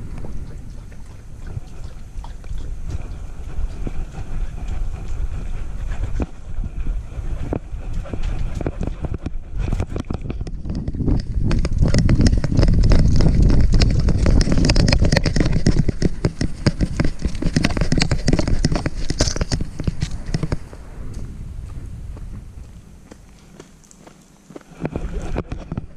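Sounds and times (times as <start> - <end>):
low rumble: 0.0 - 23.6
camera knocking and rattling: 7.5 - 20.7, 24.8 - 25.9.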